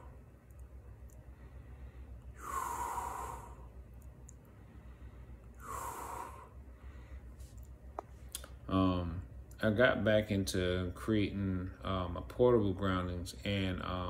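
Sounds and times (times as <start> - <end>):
person breathing heavily: 1.2 - 3.8, 4.5 - 7.5.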